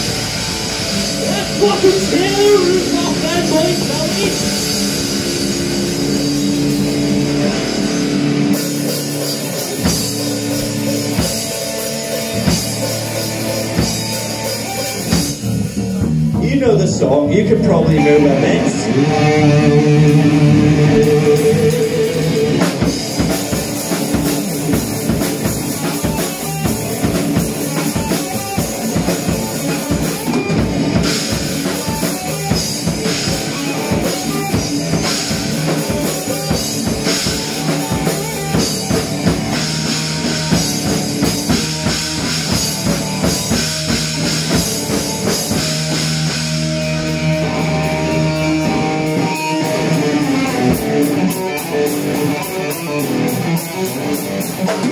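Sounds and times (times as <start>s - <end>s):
drum kit: 0.0s - 54.9s
electric guitars: 0.0s - 54.9s.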